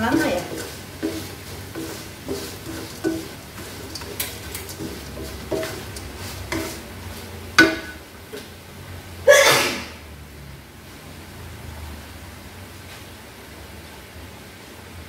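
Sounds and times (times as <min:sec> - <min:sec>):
spatula scraping in a wok: 0:00.0 - 0:08.4
faint sizzle: 0:00.0 - 0:15.0.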